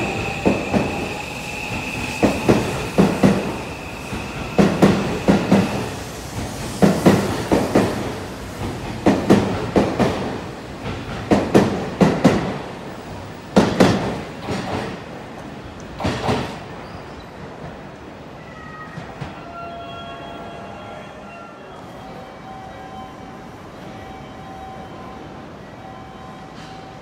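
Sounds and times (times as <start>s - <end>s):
train wheels clicking over rail joints: 13.5s - 16.7s.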